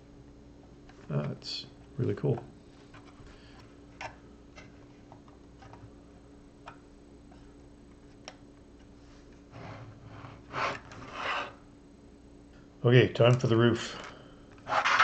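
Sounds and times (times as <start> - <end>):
faint steady hum: 0.0 - 15.0
plastic rubbing and sliding: 14.6 - 15.0.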